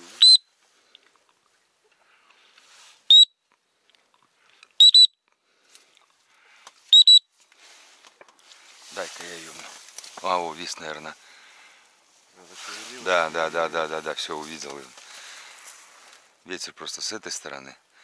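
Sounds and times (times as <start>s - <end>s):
dog whistle blasts: 0.2s - 0.5s, 3.1s - 3.4s, 4.8s - 5.2s, 6.9s - 7.3s.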